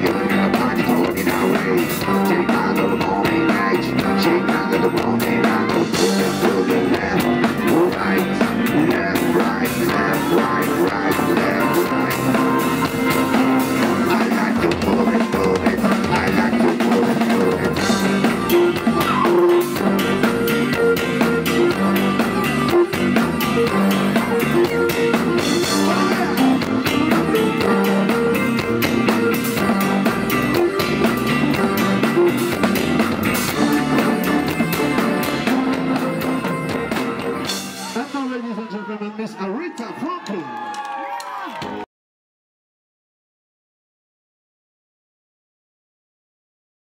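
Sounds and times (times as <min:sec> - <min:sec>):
electric guitars: 0:00.0 - 0:38.4
drum kit beats: 0:00.0 - 0:39.0.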